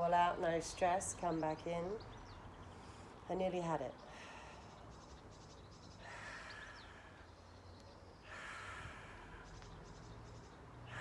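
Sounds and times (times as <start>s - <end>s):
woman breathing softly: 4.0s - 4.9s, 6.0s - 7.3s, 8.2s - 9.8s.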